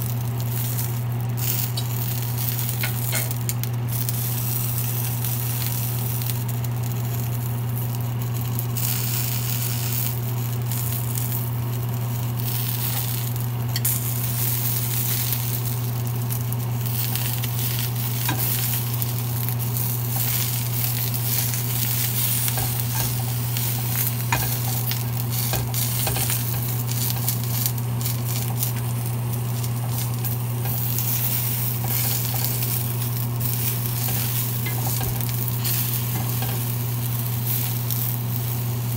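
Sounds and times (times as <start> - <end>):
food sizzling in frying pan: 0.0 - 38.9
steady low hum: 0.0 - 38.9
metal tongs clicking against pan: 21.4 - 28.8, 33.5 - 36.7.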